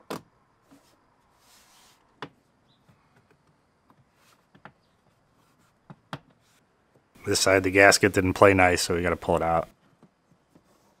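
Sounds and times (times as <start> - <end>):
soft rustle: 0.6 - 3.2, 3.9 - 6.7, 9.7 - 11.0.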